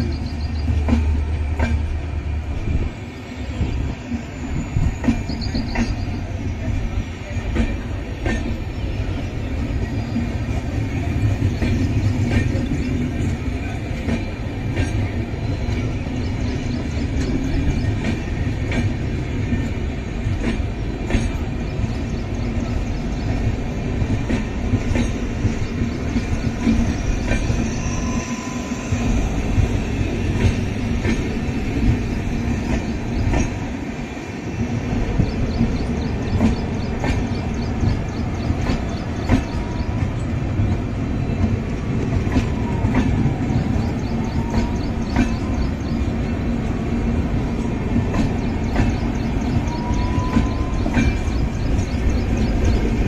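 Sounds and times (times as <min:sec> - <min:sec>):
train wheels rumbling on track: 0:00.0 - 0:53.0.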